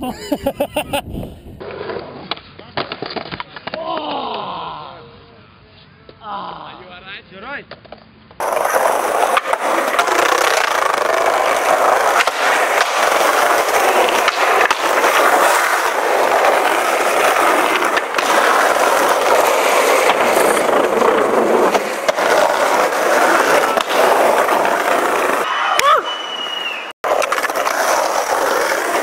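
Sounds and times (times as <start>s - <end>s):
skateboard wheels rolling on asphalt: 0.8s - 3.8s, 7.7s - 29.0s
sharp skateboard clicks: 7.7s - 25.5s, 27.1s - 29.0s.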